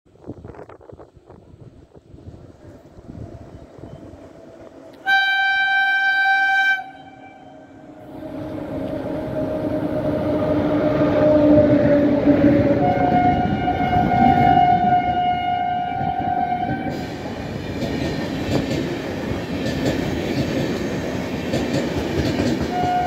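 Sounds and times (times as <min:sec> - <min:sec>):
train wheels rumbling on rail: 0:00.1 - 0:23.0
train horn blast: 0:04.9 - 0:17.0, 0:22.6 - 0:23.0.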